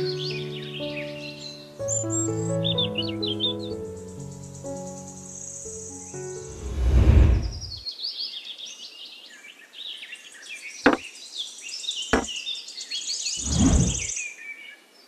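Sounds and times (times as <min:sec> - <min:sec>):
loud whoosh: 0:06.4 - 0:07.8, 0:13.4 - 0:14.1
birds chirping: 0:10.8 - 0:11.3, 0:13.2 - 0:14.3.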